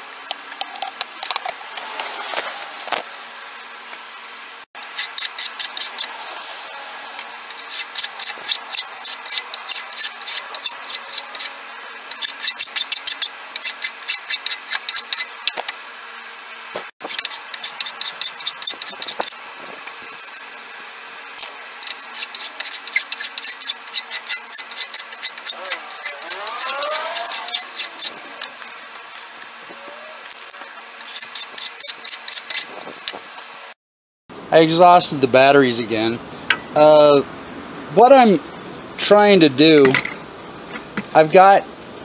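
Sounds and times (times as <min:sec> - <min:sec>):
hand file scraping wood: 0:04.9 - 0:15.7, 0:17.0 - 0:19.4, 0:21.8 - 0:28.8, 0:31.0 - 0:33.2.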